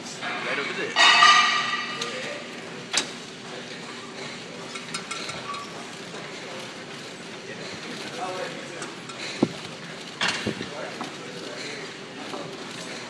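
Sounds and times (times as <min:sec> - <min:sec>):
weight machine clinking: 0:00.2 - 0:02.5.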